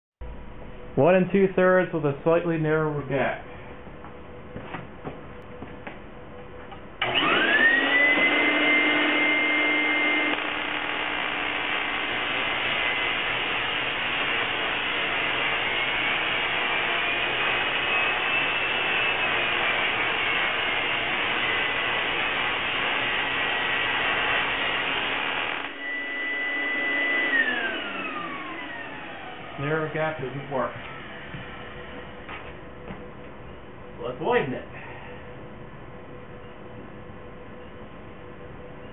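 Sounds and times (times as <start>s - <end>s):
motor whine: 3.8s - 33.6s
tesla coil spark buzz: 7.0s - 27.8s.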